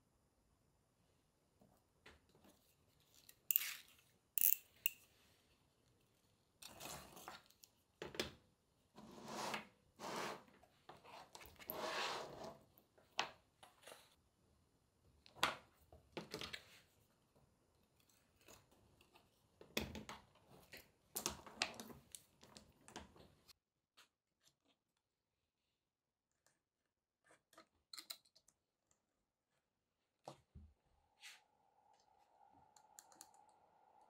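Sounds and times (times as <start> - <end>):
stone tiles clicking together: 4.4 - 5.0.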